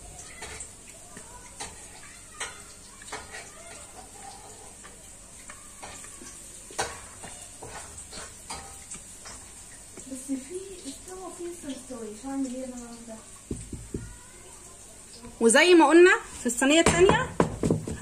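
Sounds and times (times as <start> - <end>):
spatula scraping bowl: 1.6 - 9.5.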